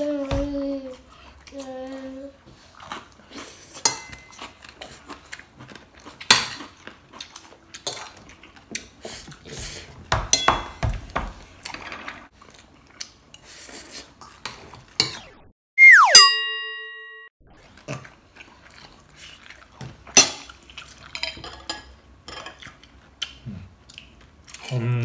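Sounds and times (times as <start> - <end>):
whistle-like tone sliding down: 15.8 - 16.3
bell-like ding: 15.8 - 17.3.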